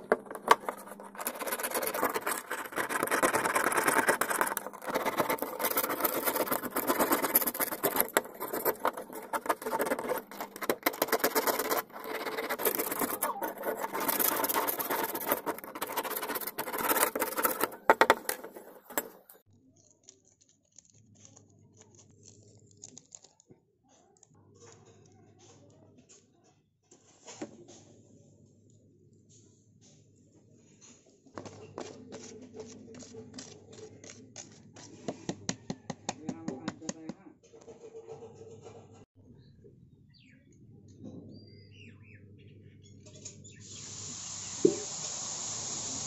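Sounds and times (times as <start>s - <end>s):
metal blade scraping a trowel: 0.0s - 19.4s.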